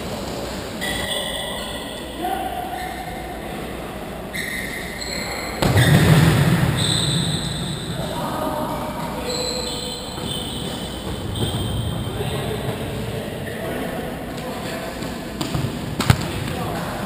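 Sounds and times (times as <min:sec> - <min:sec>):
football kicked with echoing thud: 0:05.6 - 0:07.5, 0:15.4 - 0:16.6.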